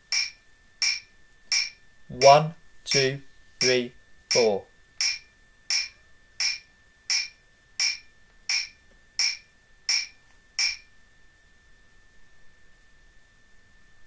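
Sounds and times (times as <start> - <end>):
metronome clicking: 0.0 - 10.9.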